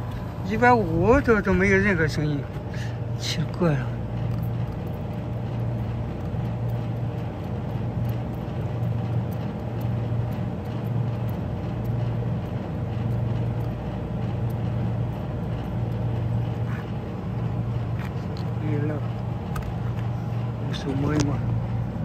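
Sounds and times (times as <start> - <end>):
machine humming: 0.0 - 22.0
faint high ticks: 4.3 - 16.6.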